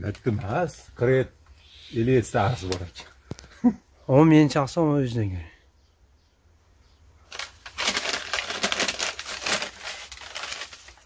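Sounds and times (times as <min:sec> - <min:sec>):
dense crackling and rustling: 0:07.2 - 0:11.0.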